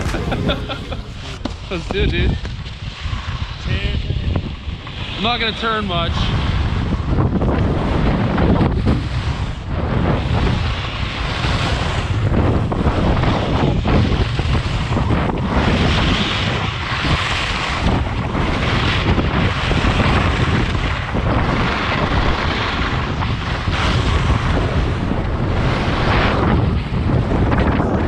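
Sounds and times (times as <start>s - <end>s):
ski edges carving snow: 0.0s - 28.0s
wind buffeting microphone: 0.0s - 28.0s.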